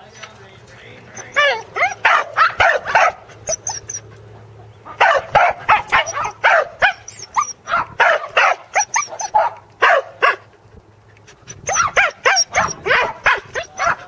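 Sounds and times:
dog barking in high yips: 0:01.2 - 0:04.0, 0:05.0 - 0:10.4, 0:11.7 - 0:14.0.

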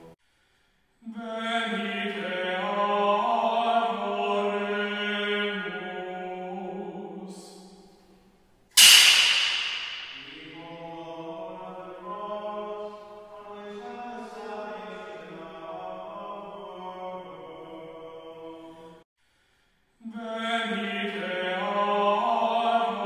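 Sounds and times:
liturgical chant singing: 0:01.1 - 0:07.7, 0:09.4 - 0:19.0, 0:20.1 - 0:23.0
sharp ringing knock: 0:08.8 - 0:10.5.

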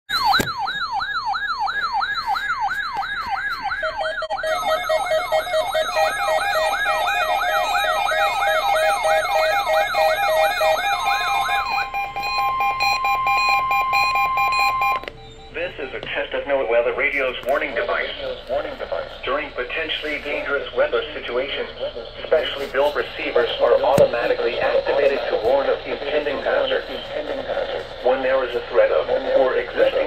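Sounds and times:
falling whoop alarm: 0:00.1 - 0:15.6
steady alarm tone: 0:00.1 - 0:30.0
pulsing beeps: 0:01.8 - 0:16.3.

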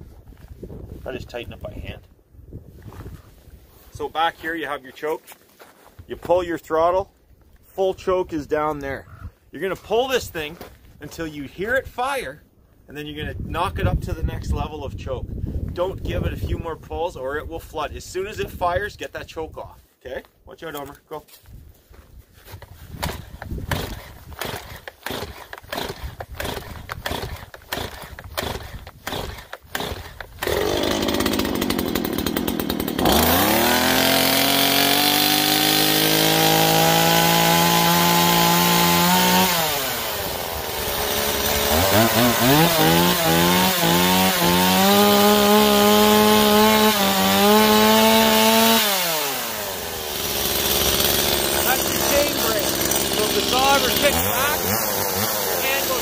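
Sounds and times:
chainsaw engine revving: 0:23.0 - 0:56.0.

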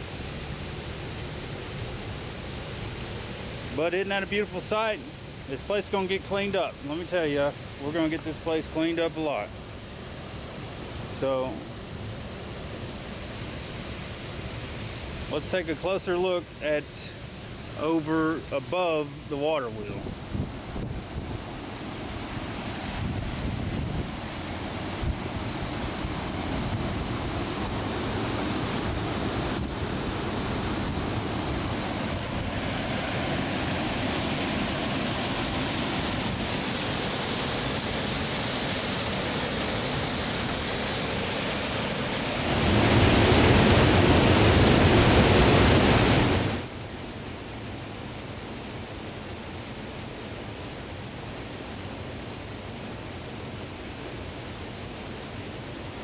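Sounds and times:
water rushing over spillway: 0:00.0 - 0:56.0.

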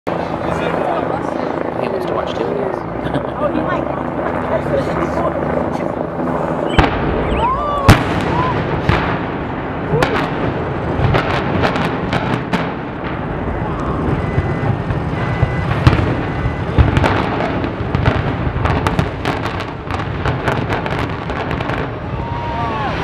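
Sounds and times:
explosive charges cracking: 0:06.7 - 0:22.0.

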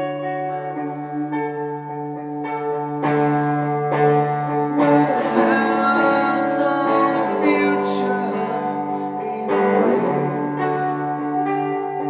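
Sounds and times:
electric guitar chords: 0:00.0 - 0:12.0
man singing: 0:04.8 - 0:10.7.

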